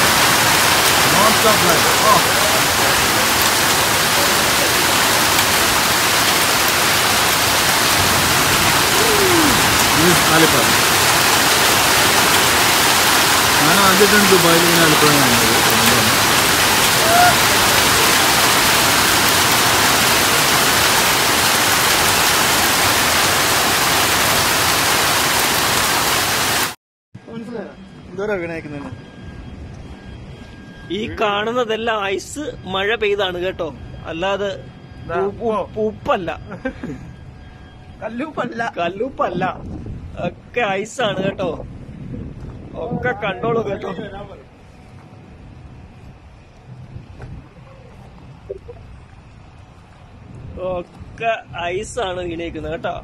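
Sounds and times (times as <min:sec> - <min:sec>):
heavy rain and hail: 0:00.0 - 0:26.8.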